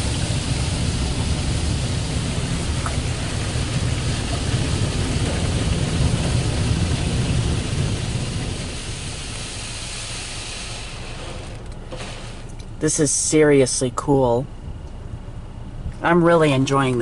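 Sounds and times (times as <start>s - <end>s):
low rumble: 0.0s - 12.8s
water jets spraying over car: 0.0s - 13.1s.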